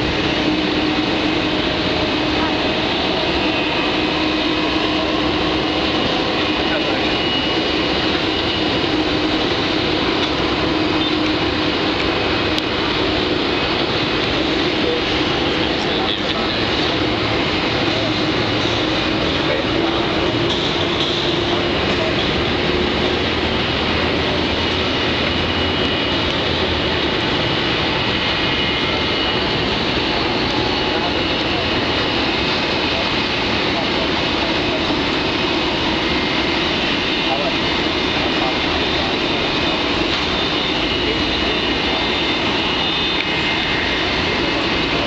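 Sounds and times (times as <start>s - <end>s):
high turbine whine: 0.0s - 45.0s
jet engine roar: 0.0s - 45.0s.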